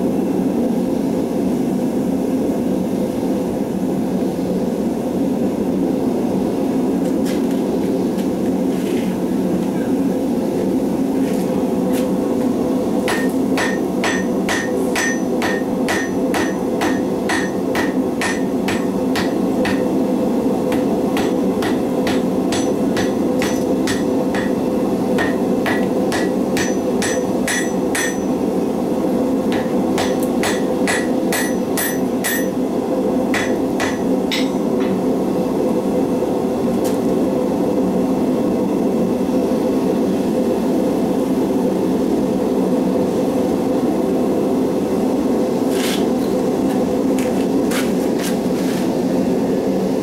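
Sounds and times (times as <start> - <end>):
hammer ringing on hot steel: 13.1 - 20.1, 20.7 - 28.5, 29.5 - 35.1.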